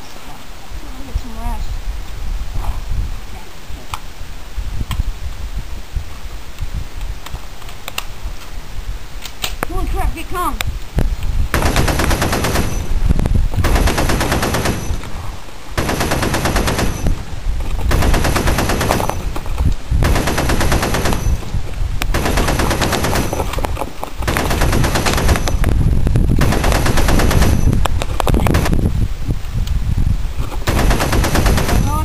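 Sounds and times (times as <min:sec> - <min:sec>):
machine-gun fire bursts: 0:11.5 - 0:12.9, 0:13.6 - 0:15.0, 0:15.8 - 0:17.2, 0:17.9 - 0:19.2, 0:20.0 - 0:21.4, 0:22.1 - 0:23.4, 0:24.3 - 0:25.6, 0:26.4 - 0:27.7, 0:30.7 - 0:32.0.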